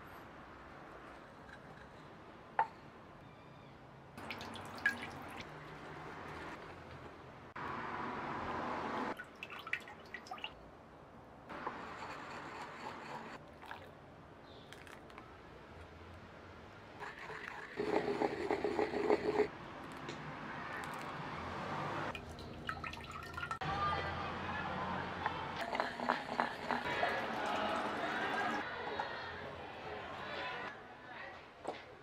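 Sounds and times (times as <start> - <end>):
ink trickling into bowl: 4.2 - 6.6, 13.5 - 13.9, 14.6 - 15.2, 22.1 - 23.6, 25.6 - 28.6.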